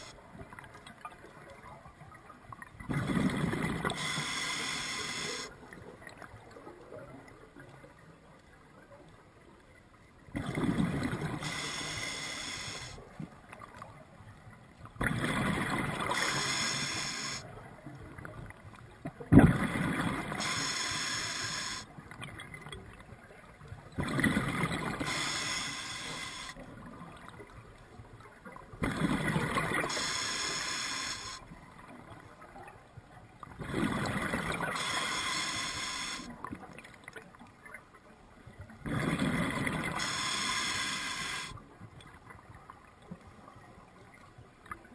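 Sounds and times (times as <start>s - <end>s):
regulator breathing hiss: 3.9s - 5.5s, 11.3s - 13.0s, 16.0s - 17.4s, 20.3s - 21.9s, 24.9s - 26.6s, 29.8s - 31.5s, 34.6s - 36.3s, 39.9s - 41.6s.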